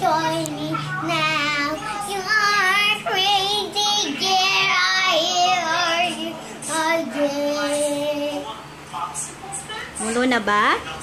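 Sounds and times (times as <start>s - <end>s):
girl singing in a high voice: 0.0s - 8.4s.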